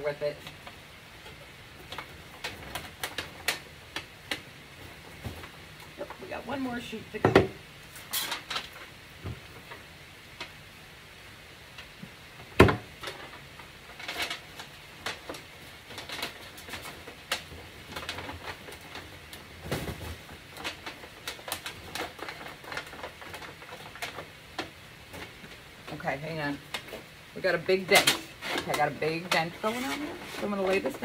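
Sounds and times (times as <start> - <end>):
aluminum sheet crinkling: 0.0 - 7.0, 7.8 - 10.6, 11.7 - 31.0.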